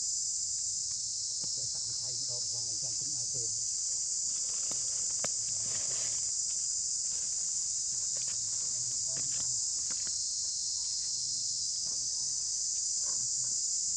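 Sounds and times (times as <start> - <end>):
insects droning: 0.0 - 13.9
faint ticks and rustles: 0.5 - 13.8.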